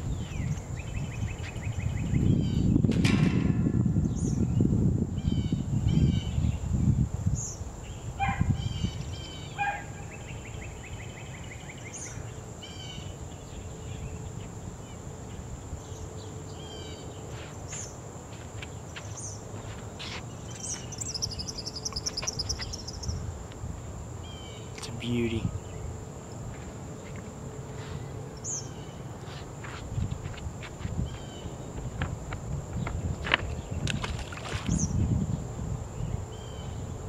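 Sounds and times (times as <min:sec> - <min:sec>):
birds chirping and trilling: 0:00.1 - 0:02.8, 0:07.4 - 0:18.0, 0:20.0 - 0:23.3, 0:27.0 - 0:29.1.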